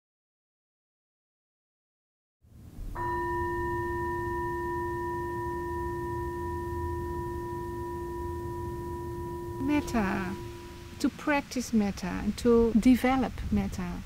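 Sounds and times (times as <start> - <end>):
singing bowl ringing: 2.9 - 11.2.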